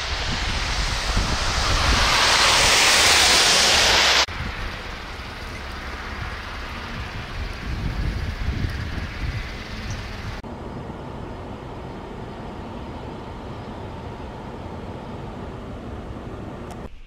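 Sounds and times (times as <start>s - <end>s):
low rumble: 0.0s - 10.4s
traffic on slushy streets: 0.0s - 17.0s
wind: 0.0s - 17.0s.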